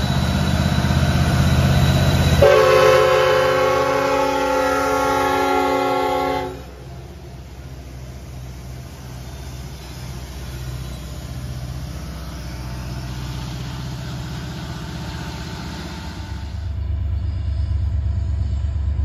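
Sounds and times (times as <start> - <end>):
diesel locomotive rumble: 0.0 - 19.0.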